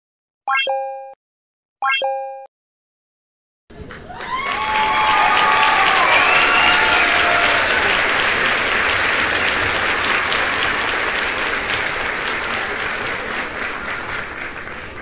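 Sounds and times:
crowd applause: 3.7 - 15.0
crowd cheering: 3.7 - 15.0.

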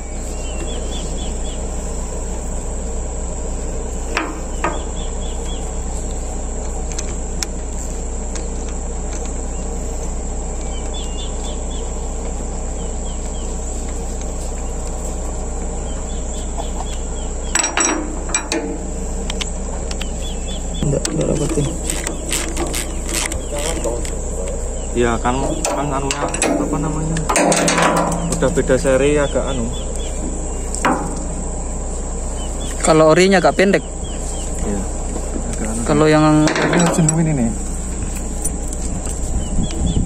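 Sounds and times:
bird chirps: 0.0 - 40.0
constant low hum: 0.0 - 40.0
insects chirring: 0.0 - 40.0
sharp clicks and knocks: 4.1 - 5.1, 6.6 - 9.4, 16.6 - 20.2, 20.8 - 24.6, 25.2 - 29.0, 29.8 - 31.6, 36.3 - 39.8.

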